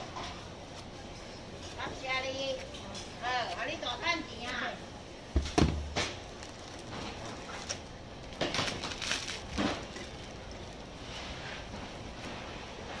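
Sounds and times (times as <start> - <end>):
plastic bag crinkling: 5.8 - 11.9.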